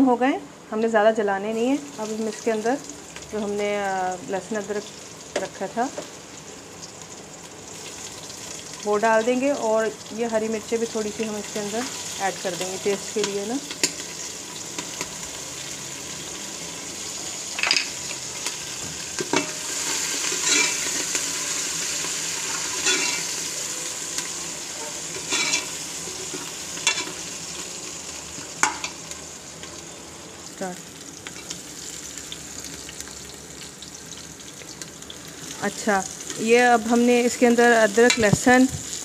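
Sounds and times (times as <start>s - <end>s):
onions sizzling in hot oil: 1.0s - 39.0s
metal ladle scraping pot: 19.4s - 21.1s, 22.4s - 23.4s, 24.8s - 27.2s.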